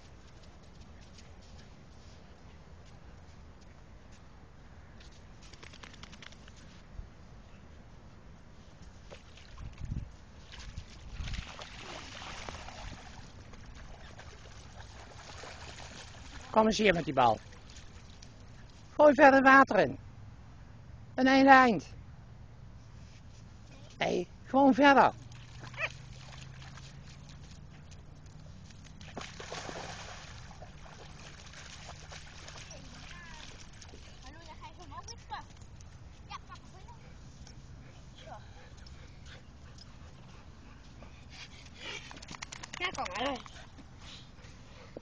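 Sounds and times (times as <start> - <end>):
wind rumble on microphone: 9.4 - 11.6
dog wading through water: 10.4 - 19.0, 25.2 - 36.0.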